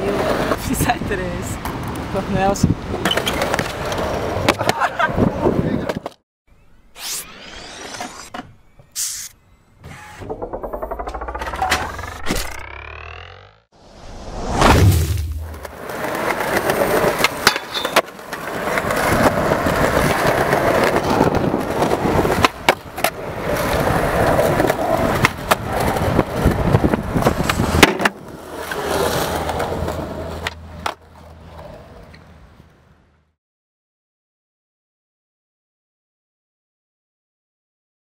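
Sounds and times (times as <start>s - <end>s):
skateboard wheels rolling on concrete: 0.0s - 6.2s, 15.2s - 33.3s
skateboard popping and landing: 3.0s - 4.9s, 15.2s - 32.3s
skateboard grinding on concrete ledge: 15.4s - 32.0s.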